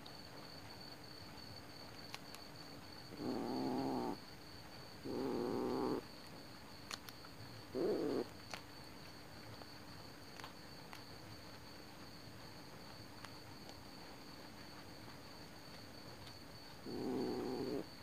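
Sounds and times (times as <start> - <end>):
kitten growling: 3.1 - 4.2, 5.0 - 6.0, 7.7 - 8.3, 16.8 - 17.9.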